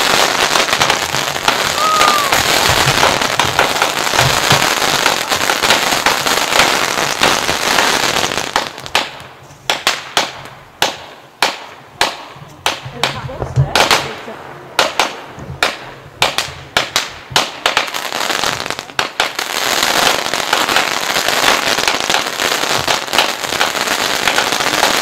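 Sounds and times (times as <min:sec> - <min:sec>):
fireworks crackling and banging: 0:00.0 - 0:25.0
firework whistle: 0:01.6 - 0:03.2.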